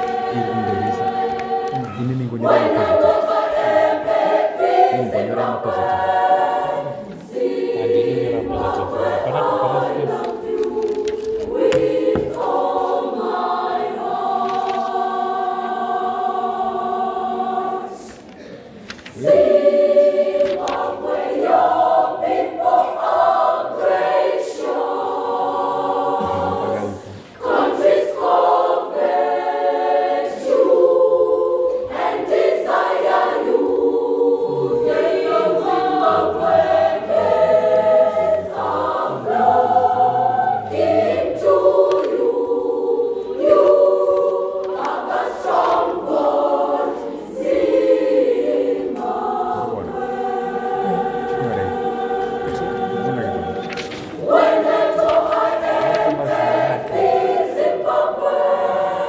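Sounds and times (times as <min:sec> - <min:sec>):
children's choir singing: 0:00.0 - 0:59.0.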